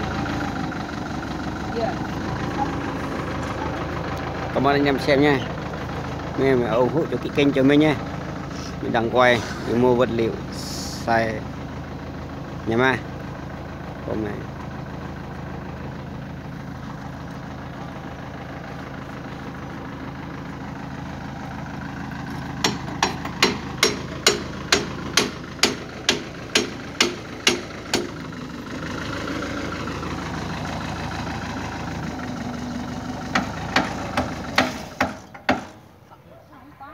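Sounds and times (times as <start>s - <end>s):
heavy machine engine idling: 0.0s - 36.9s
sharp knocks: 22.6s - 28.2s, 33.3s - 35.8s.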